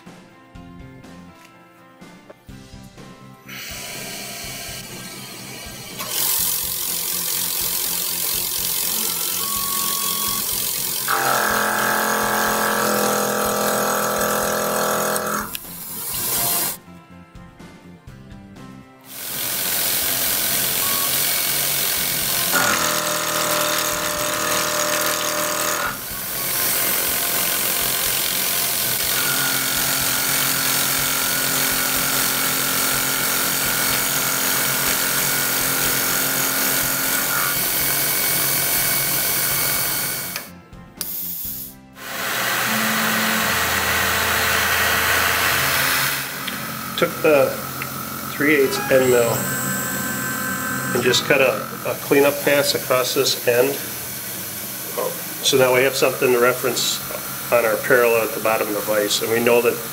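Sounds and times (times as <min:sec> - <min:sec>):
background music: 0:00.0 - 0:59.9
mill cutting metal: 0:03.5 - 0:16.8, 0:19.1 - 0:40.5, 0:42.0 - 0:59.9.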